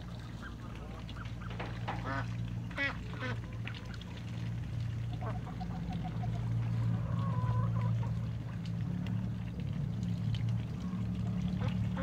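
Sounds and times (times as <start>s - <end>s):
ducks quacking: 0.4s - 3.6s.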